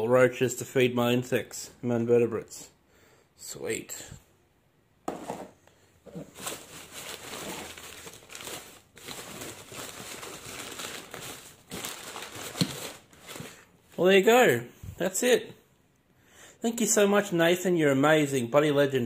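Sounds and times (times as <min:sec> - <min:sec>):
packing paper rustling: 0:06.1 - 0:14.0.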